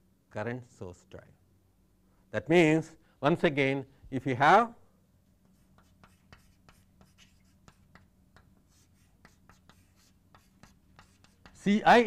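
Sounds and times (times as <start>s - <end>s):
low electrical hum: 0.0s - 12.0s
pen scratching while writing: 5.5s - 11.6s.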